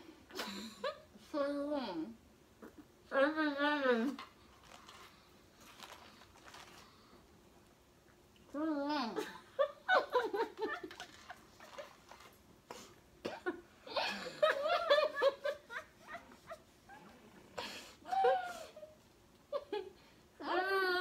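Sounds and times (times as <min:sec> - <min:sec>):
girls laughing: 0:09.2 - 0:11.8, 0:13.9 - 0:16.7.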